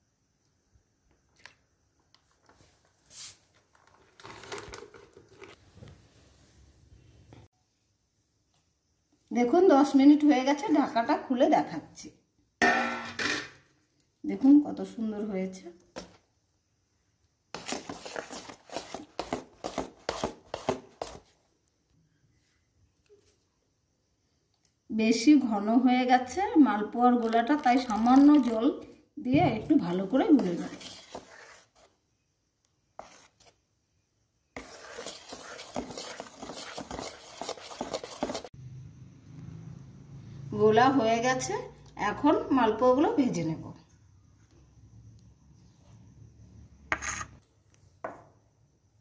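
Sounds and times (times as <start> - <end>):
spoon stirring batter in metal bowl: 17.6 - 21.3, 27.2 - 28.6, 29.8 - 32.0, 33.0 - 33.6, 34.6 - 38.6
spoon scraping metal bowl: 30.4 - 31.9, 34.6 - 38.5, 46.9 - 47.4.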